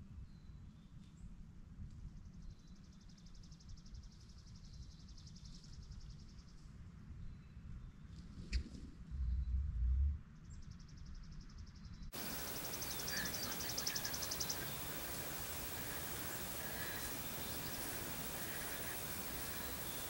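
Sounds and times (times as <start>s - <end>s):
songbird trilling: 12.2s - 20.0s
steady background hiss: 12.2s - 20.0s.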